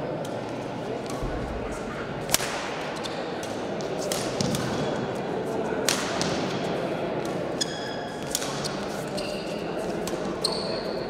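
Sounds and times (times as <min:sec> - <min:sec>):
voices in hall: 0:00.0 - 0:11.0
rackets striking shuttlecock: 0:02.3 - 0:05.0
shoes squeaking on court floor: 0:07.6 - 0:11.0.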